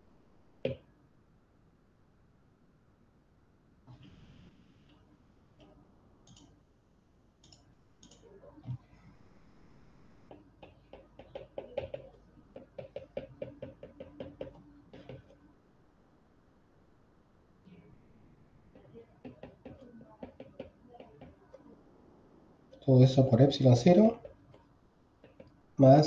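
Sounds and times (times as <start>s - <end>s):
stylus knock: 10.3s - 15.3s, 18.8s - 21.4s
stylus tapping on pen tablet: 10.3s - 15.4s, 18.7s - 21.6s, 25.2s - 25.6s.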